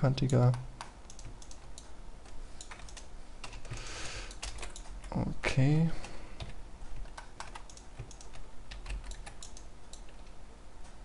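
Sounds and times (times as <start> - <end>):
computer keyboard keys clicking: 0.2 - 1.9, 2.6 - 5.2, 6.4 - 10.3.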